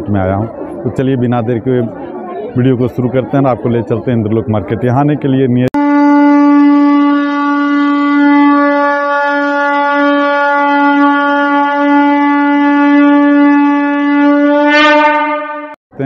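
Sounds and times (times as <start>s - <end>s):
loud reedy note: 5.8s - 15.8s.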